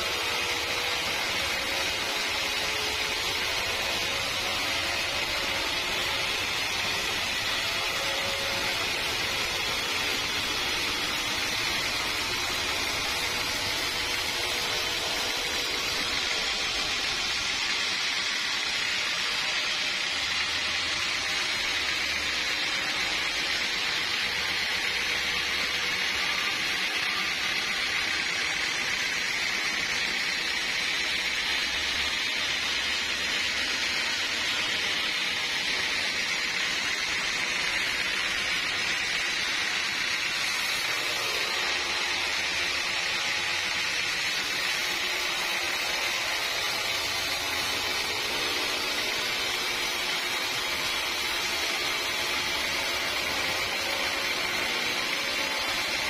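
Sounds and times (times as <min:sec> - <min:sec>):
saw cutting through log: 0:00.0 - 0:56.0.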